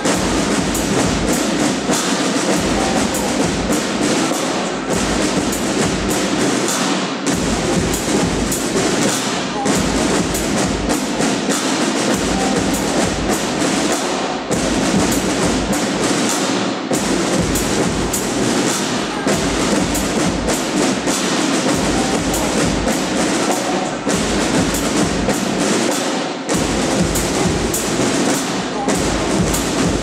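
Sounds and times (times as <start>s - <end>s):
marching snare drums: 0.0s - 30.0s
bass drum strokes: 26.5s - 30.0s.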